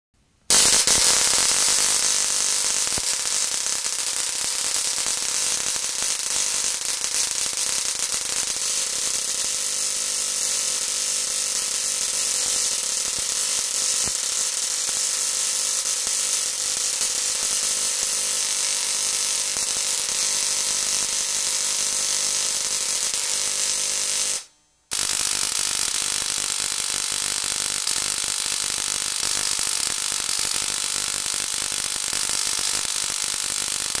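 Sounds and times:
tesla coil sparks buzzing: 0:00.5 - 0:34.0.

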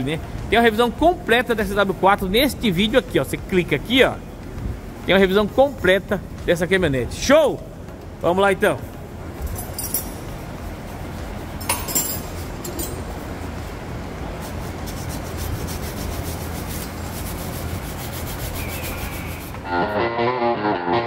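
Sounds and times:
music: 0:00.0 - 0:12.5, 0:18.0 - 0:21.0.

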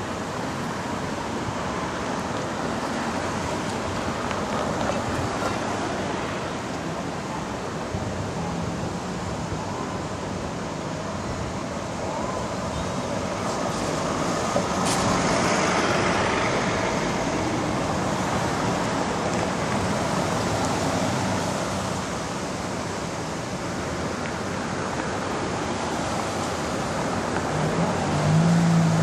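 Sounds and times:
street traffic: 0:00.0 - 0:29.0
vans driving past: 0:12.9 - 0:22.8, 0:25.2 - 0:29.0.

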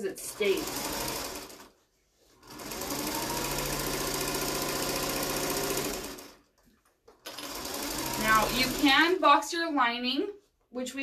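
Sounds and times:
electric sewing machine stitching: 0:00.1 - 0:01.8, 0:02.4 - 0:06.5, 0:07.2 - 0:09.2.

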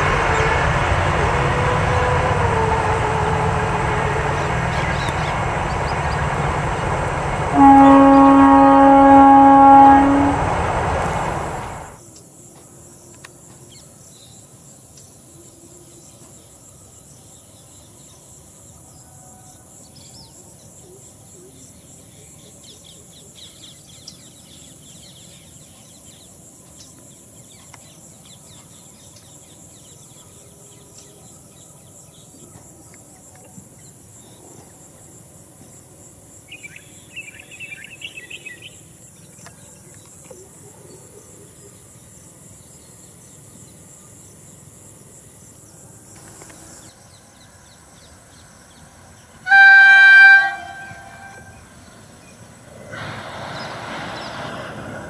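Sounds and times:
bird chirping: 0:03.2 - 0:08.0.

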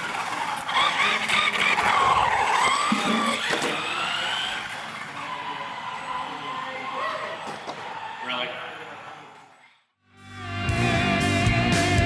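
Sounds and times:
toy truck motor whining: 0:00.0 - 0:07.5.

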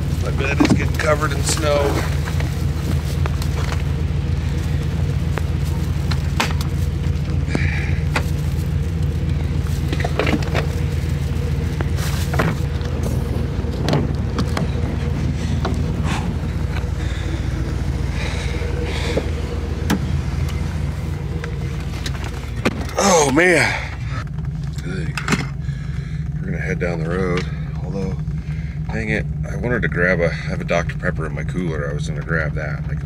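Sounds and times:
truck engine idling: 0:00.0 - 0:33.0
knocks and clicks of handling: 0:13.8 - 0:15.0.

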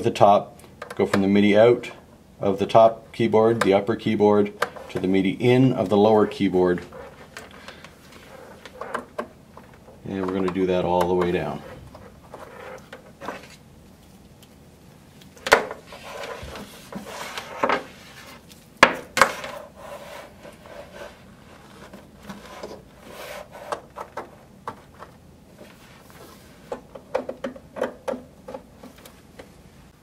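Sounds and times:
cable coil rubbing: 0:04.2 - 0:14.6, 0:15.2 - 0:18.7
cable plugs knocking and clicking: 0:26.7 - 0:29.5.

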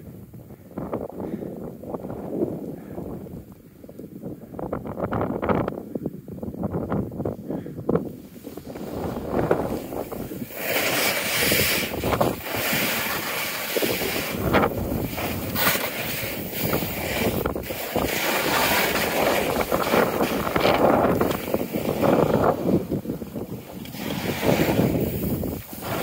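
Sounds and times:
wind buffeting microphone: 0:00.0 - 0:26.0
sliding on snow scraping: 0:08.2 - 0:26.0.

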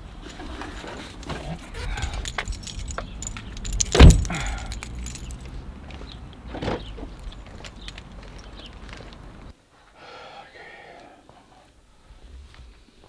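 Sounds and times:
light rattling clicks: 0:01.9 - 0:05.5
car door slamming: 0:03.8 - 0:04.6.

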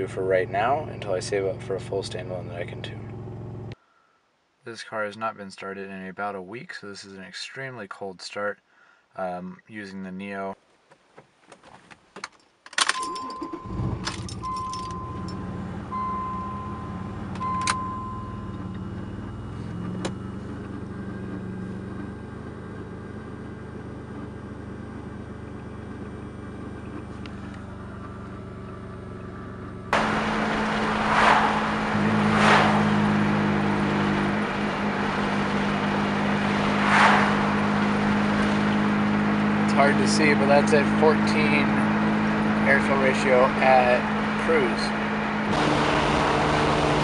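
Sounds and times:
car driving on road: 0:00.0 - 0:03.8, 0:13.0 - 0:47.0
car engine starting and idling: 0:00.0 - 0:03.8, 0:12.8 - 0:47.0
car chime beeping: 0:12.9 - 0:20.4.

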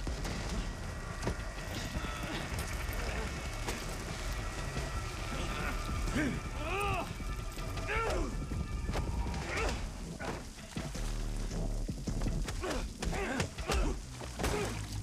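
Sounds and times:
heavy rain pouring: 0:00.0 - 0:15.0
men grunting and groaning: 0:07.8 - 0:08.4, 0:12.5 - 0:15.0.

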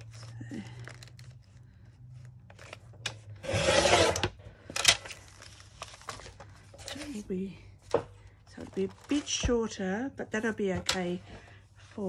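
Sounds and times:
paper handling: 0:00.0 - 0:03.3, 0:04.6 - 0:07.3, 0:08.6 - 0:09.7
paper trimmer blade scraping cut: 0:03.4 - 0:04.3.

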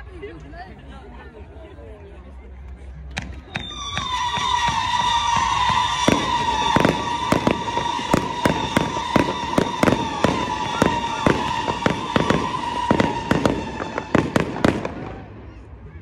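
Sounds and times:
fireworks bursting: 0:03.2 - 0:15.8.

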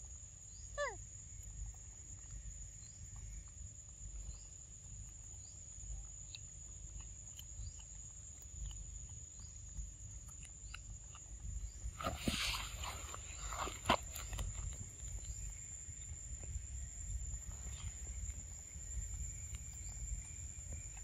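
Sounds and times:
faint ticks and chirps: 0:00.0 - 0:21.0
rustle: 0:11.6 - 0:21.0.

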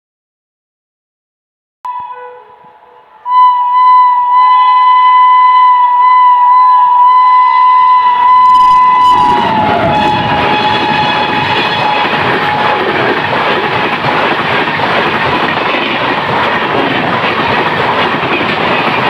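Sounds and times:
locomotive horn blast: 0:01.9 - 0:12.8
train rushing and rattling: 0:04.2 - 0:19.0.

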